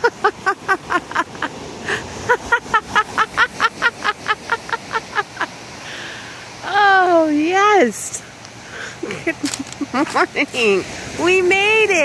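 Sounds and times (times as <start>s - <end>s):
woman laughing: 0.0s - 5.5s, 9.0s - 10.8s
woman breathing in: 5.8s - 6.5s, 8.6s - 9.0s.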